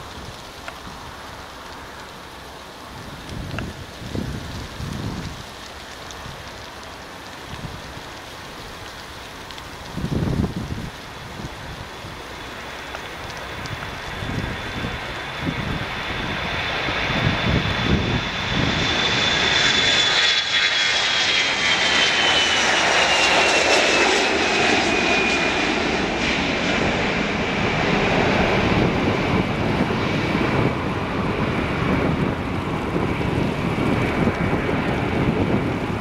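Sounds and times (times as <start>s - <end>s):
jet engine roar: 0.0s - 36.0s
high fan whine: 27.7s - 36.0s.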